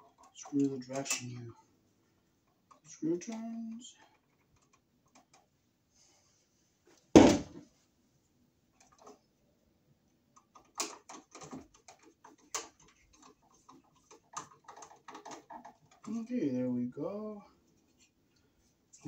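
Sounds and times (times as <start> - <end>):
heavy thump: 7.2 - 7.6.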